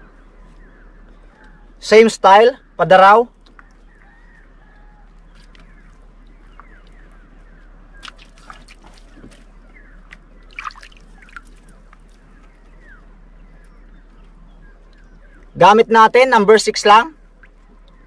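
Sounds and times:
bird chirps: 0.0s - 18.0s
small water splashes: 7.9s - 12.3s, 17.3s - 18.0s
water trickling and dripping: 8.0s - 12.7s, 17.2s - 18.0s.

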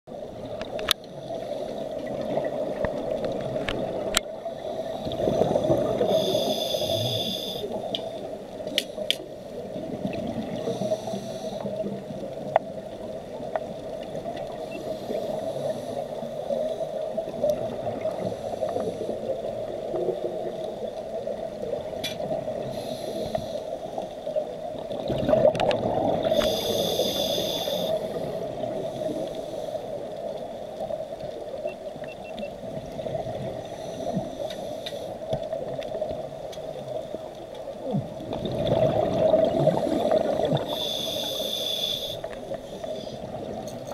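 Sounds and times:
muffled underwater drone: 0.1s - 43.9s
scuba regulator breathing: 4.4s - 9.2s, 10.6s - 11.9s, 14.5s - 17.0s, 18.2s - 19.4s, 22.6s - 24.1s, 26.1s - 30.3s, 33.5s - 35.3s, 39.6s - 43.4s
rush of exhaled bubbles: 25.0s - 27.1s, 37.9s - 41.1s.

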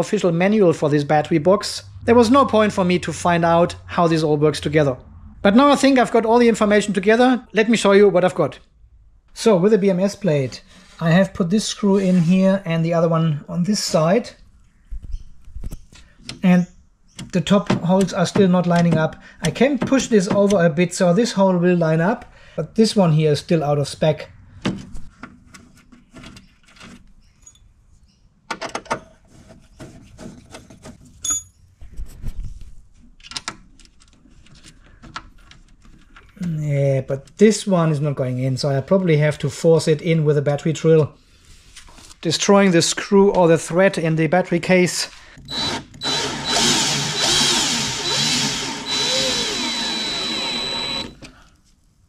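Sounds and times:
brief squeak: 27.2s - 27.7s
cordless drill motor whining: 45.5s - 51.3s.

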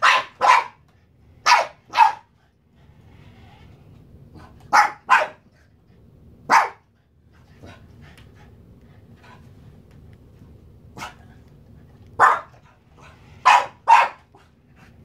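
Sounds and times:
puppy barking: 0.0s - 0.8s, 1.4s - 2.3s, 4.7s - 5.5s, 6.5s - 6.9s, 12.2s - 12.6s, 13.4s - 14.4s.

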